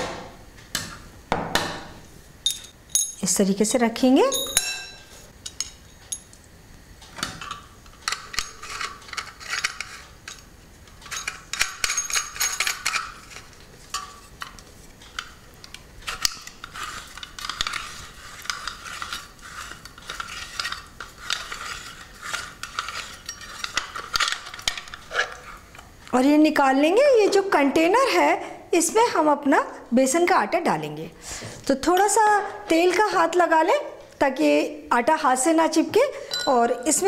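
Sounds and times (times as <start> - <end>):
metal parts clinking and scraping: 8.0 - 14.1.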